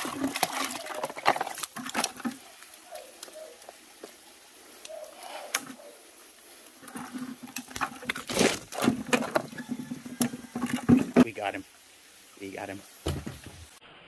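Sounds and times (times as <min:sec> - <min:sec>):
rustling and scraping on rocks: 0:00.0 - 0:11.6
sharp knocks and thumps: 0:07.0 - 0:11.4, 0:13.0 - 0:13.8.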